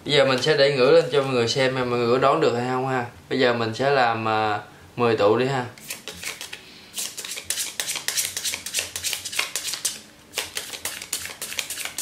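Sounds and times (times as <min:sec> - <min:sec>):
playing cards shuffling: 0:05.8 - 0:12.0.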